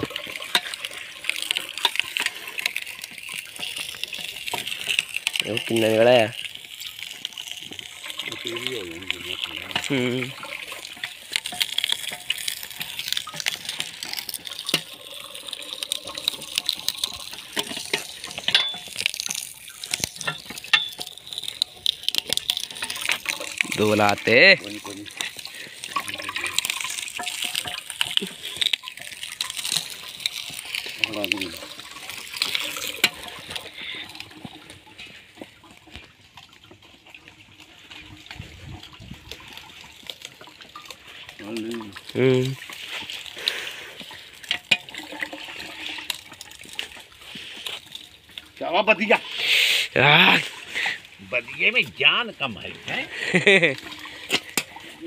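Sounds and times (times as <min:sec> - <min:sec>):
juice trickling into bucket: 0:00.0 - 0:55.0.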